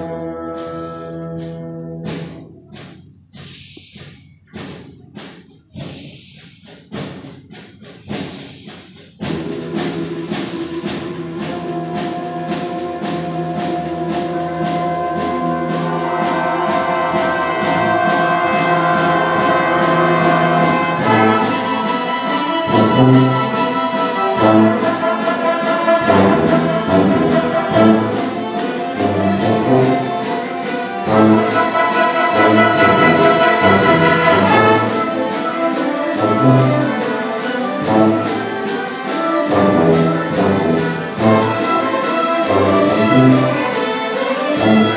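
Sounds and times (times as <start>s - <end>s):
orchestra playing: 0.0s - 5.0s, 9.2s - 44.9s
heavy accented low beats: 26.0s - 35.3s.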